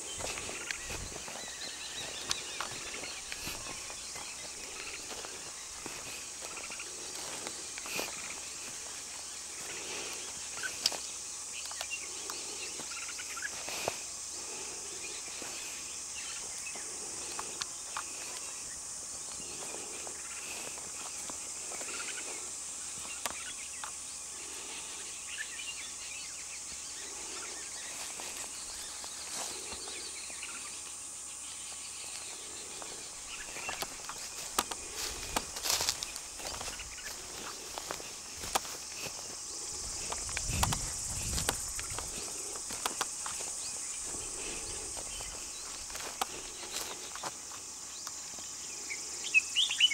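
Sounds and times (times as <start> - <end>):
faint bird calls: 0.0 - 49.9
high insect hiss: 0.0 - 49.9
twigs snapping underfoot: 33.5 - 43.5.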